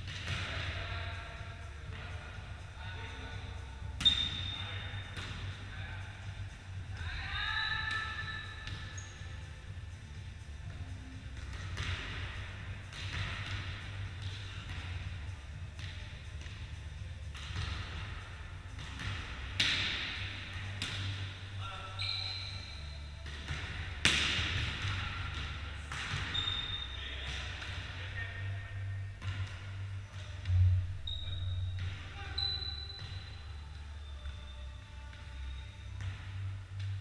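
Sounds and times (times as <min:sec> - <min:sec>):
shoe squeaks: 0:04.0 - 0:04.7, 0:08.0 - 0:09.5, 0:21.8 - 0:23.0, 0:26.2 - 0:27.1, 0:31.0 - 0:34.8.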